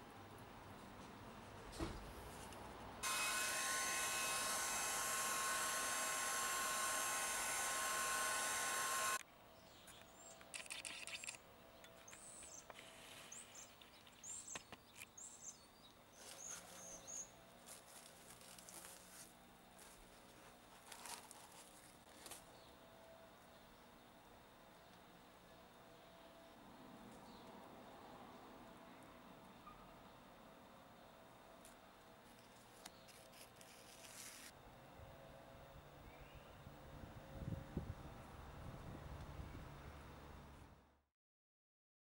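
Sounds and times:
faint bird chirps: 0:11.1 - 0:17.4, 0:29.5 - 0:30.2.

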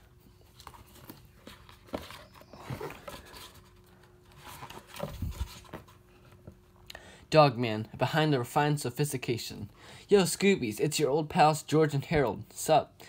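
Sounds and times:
book pages rustling: 0:00.0 - 0:06.6.

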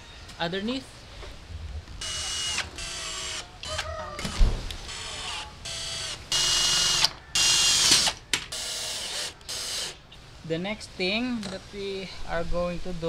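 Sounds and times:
cordless drill whine: 0:02.0 - 0:09.9.

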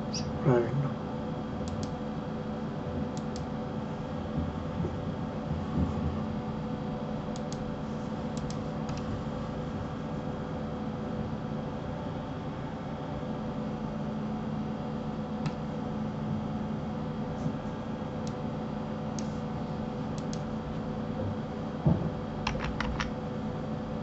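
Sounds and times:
steady low hum: 0:00.0 - 0:24.0
keyboard clicks: 0:01.6 - 0:02.0.

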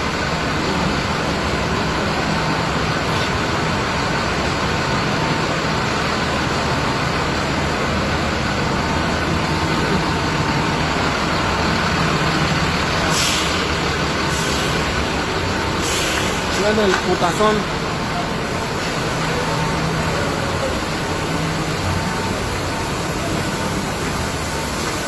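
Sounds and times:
bus engine running: 0:00.0 - 0:25.0
short air hisses: 0:13.1 - 0:13.7, 0:14.3 - 0:14.9, 0:15.8 - 0:16.5.

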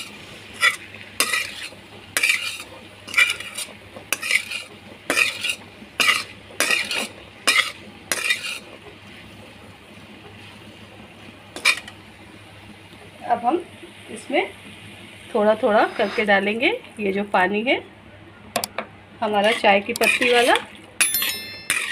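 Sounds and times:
food sizzling: 0:00.0 - 0:12.1, 0:21.3 - 0:21.9
metal ladle scraping iron pan: 0:00.6 - 0:08.6, 0:15.7 - 0:16.3, 0:19.4 - 0:20.6, 0:21.7 - 0:21.9.

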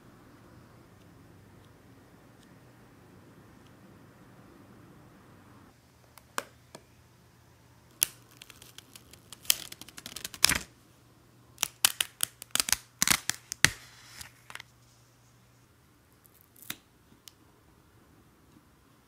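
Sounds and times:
plastic sheet crackling: 0:07.9 - 0:10.7.

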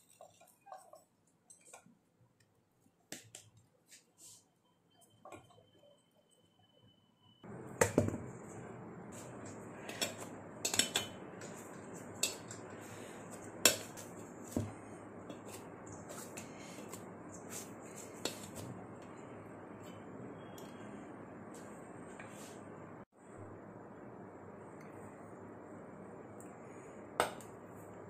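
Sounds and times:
metal utensils clinking on cookware: 0:09.9 - 0:11.2.

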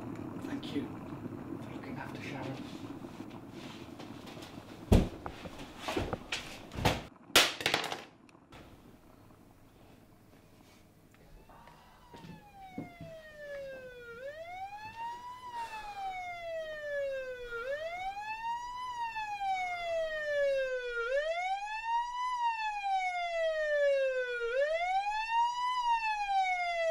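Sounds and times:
police siren wailing: 0:11.2 - 0:26.9.

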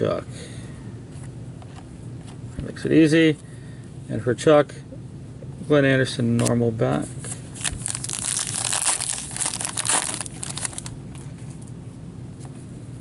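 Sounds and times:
rustling and scraping of cards: 0:06.4 - 0:11.8.

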